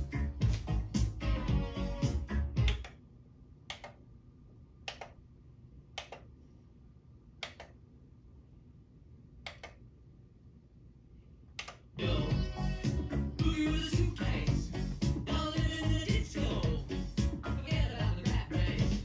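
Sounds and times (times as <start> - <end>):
faint steady hum: 0.0 - 19.0
push buttons clicking: 2.6 - 3.0, 3.7 - 4.0, 4.8 - 5.2, 6.0 - 6.3, 7.4 - 7.8, 9.4 - 9.8, 11.6 - 11.9.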